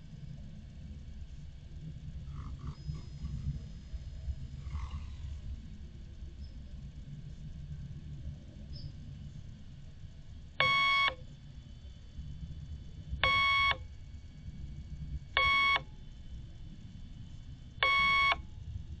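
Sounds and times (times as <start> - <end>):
low steady rumble: 0.0 - 19.0
electronic beeps: 10.6 - 11.2, 13.2 - 13.8, 15.4 - 15.9, 17.8 - 18.4.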